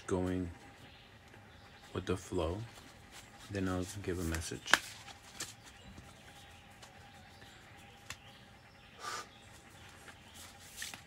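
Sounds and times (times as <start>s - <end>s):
card rustling: 2.7s - 8.2s, 9.8s - 11.0s.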